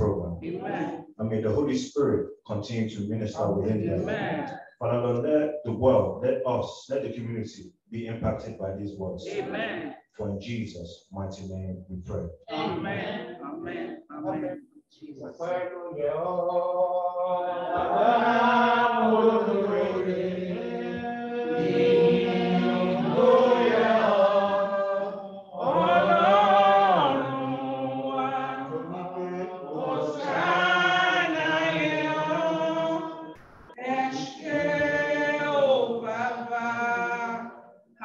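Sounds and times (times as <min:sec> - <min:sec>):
group singing a hymn: 0:00.0 - 0:01.0, 0:03.3 - 0:04.6, 0:09.2 - 0:09.9, 0:12.5 - 0:14.6, 0:15.3 - 0:37.8.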